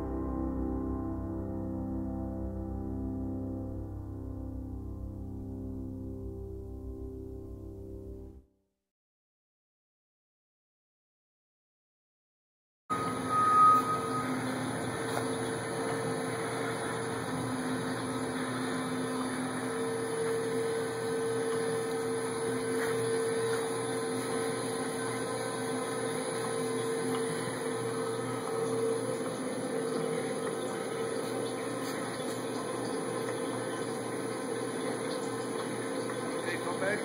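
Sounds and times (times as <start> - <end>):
mid-pitched whine: 12.9 - 31.8
lathe mechanical hum: 12.9 - 37.0.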